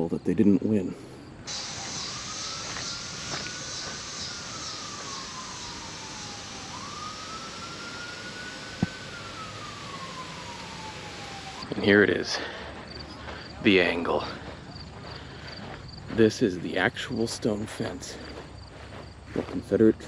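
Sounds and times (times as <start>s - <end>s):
steady high hiss: 1.5s - 12.4s
siren wailing: 1.5s - 13.2s.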